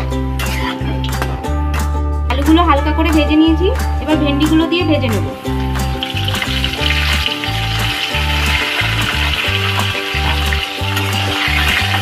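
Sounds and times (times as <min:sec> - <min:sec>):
music with bass beat: 0:00.0 - 0:12.0
food sizzling in hot oil: 0:05.2 - 0:12.0.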